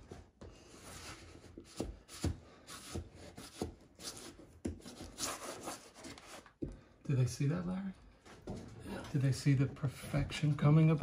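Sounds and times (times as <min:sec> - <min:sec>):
wallpaper rustling and rubbing: 0:00.0 - 0:06.6.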